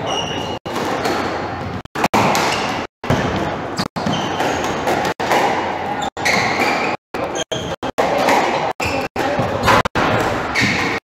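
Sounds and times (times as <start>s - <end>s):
shoes squeaking on wooden floor: 6.0s - 7.9s.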